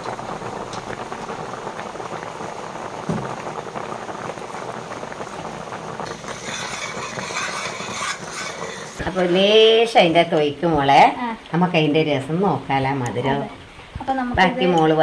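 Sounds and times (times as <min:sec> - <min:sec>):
pudding bubbling in a pot: 0:00.0 - 0:15.0
soft thump: 0:03.0 - 0:03.3
bright hiss: 0:05.2 - 0:09.9.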